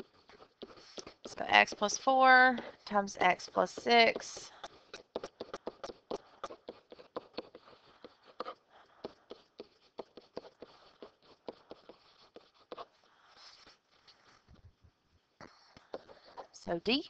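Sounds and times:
stylus tapping on writing surface: 0:03.8 - 0:12.9.

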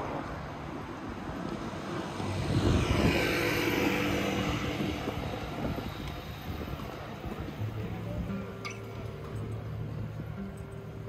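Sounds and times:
vehicle passing by: 0:00.0 - 0:07.8
street noise: 0:00.0 - 0:11.0.

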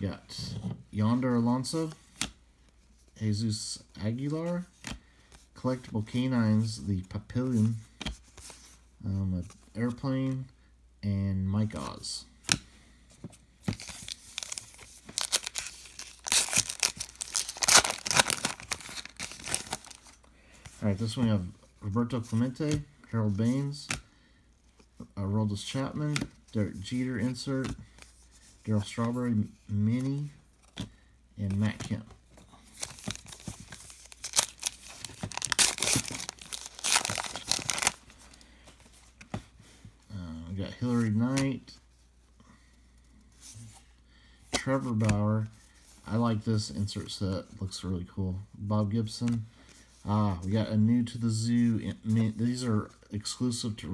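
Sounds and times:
faint handling of cards: 0:00.0 - 0:10.7, 0:11.5 - 0:53.9
foil wrapper tearing and crinkling: 0:14.1 - 0:20.0, 0:32.8 - 0:38.0.

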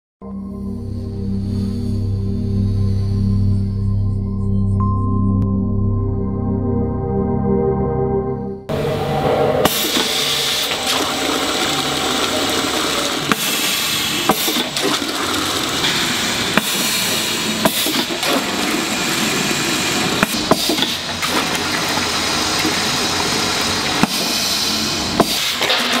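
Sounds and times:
rushing hiss of air and liquid: 0:09.7 - 0:21.2, 0:22.0 - 0:25.8
pneumatic valve clicks: 0:13.3 - 0:15.0, 0:15.8 - 0:18.5, 0:20.2 - 0:21.4, 0:24.0 - 0:26.0.

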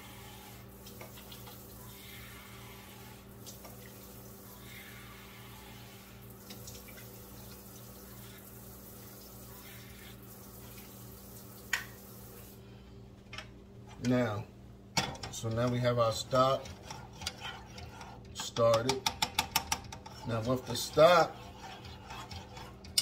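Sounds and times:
tap running into pot: 0:11.7 - 0:12.0.

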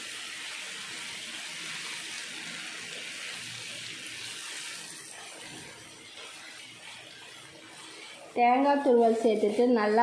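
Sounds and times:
food sizzling in a pan: 0:00.0 - 0:10.0
wooden spatula stirring: 0:05.0 - 0:10.0.

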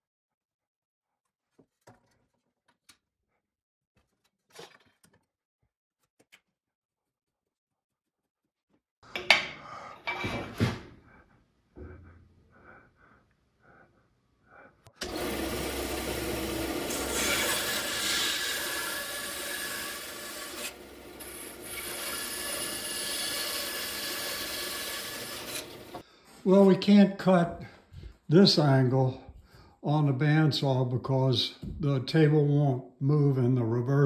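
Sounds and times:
bandsaw cutting wood: 0:15.0 - 0:26.0.

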